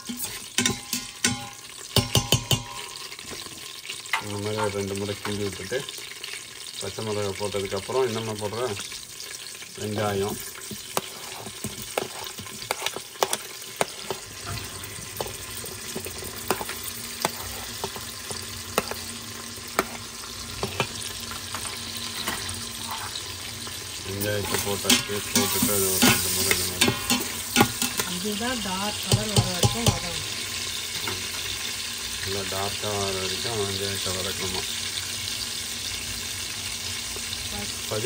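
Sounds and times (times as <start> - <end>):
spoon scraping a metal pot: 0.0 - 2.9, 10.4 - 23.3, 24.4 - 28.2, 29.1 - 30.1
onions sizzling in hot oil: 0.0 - 38.0.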